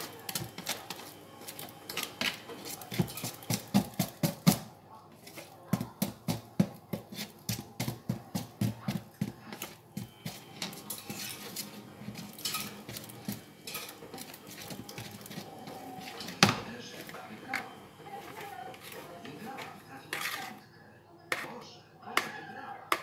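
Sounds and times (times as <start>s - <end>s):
stirring and scraping: 0.0s - 20.7s, 21.3s - 23.0s.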